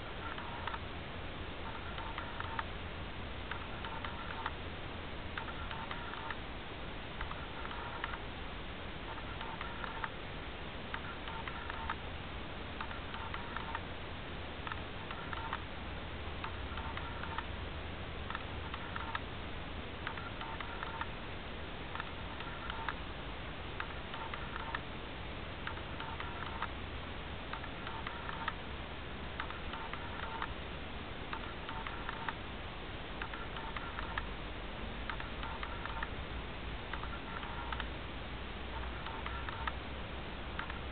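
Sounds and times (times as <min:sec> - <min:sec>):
clicks: 0:01.6 - 0:02.7, 0:03.5 - 0:04.6, 0:05.4 - 0:06.4, 0:07.2 - 0:08.2, 0:09.1 - 0:10.2, 0:10.9 - 0:12.0, 0:12.8 - 0:13.9, 0:14.6 - 0:15.7, 0:16.4 - 0:17.5, 0:18.3 - 0:19.3, 0:20.0 - 0:21.2, 0:21.9 - 0:23.1, 0:23.8 - 0:24.9, 0:25.6 - 0:26.8, 0:27.5 - 0:28.6, 0:29.3 - 0:30.6, 0:31.3 - 0:32.4, 0:33.2 - 0:34.3, 0:35.0 - 0:36.2, 0:36.9 - 0:38.0, 0:38.7 - 0:39.8, 0:40.5 - 0:40.9
electronic beeping: 0:05.4 - 0:06.4, 0:14.7 - 0:15.6, 0:16.4 - 0:17.4, 0:20.0 - 0:21.1, 0:22.0 - 0:23.0, 0:25.6 - 0:26.7, 0:35.1 - 0:36.1, 0:36.9 - 0:37.9, 0:38.7 - 0:39.8.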